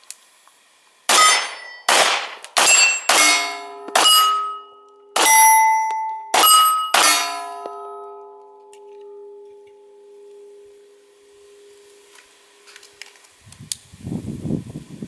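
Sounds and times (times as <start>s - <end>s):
pistol shots: 1.1s - 4.6s, 5.2s - 7.8s
steel plate target ringing: 1.1s - 12.7s.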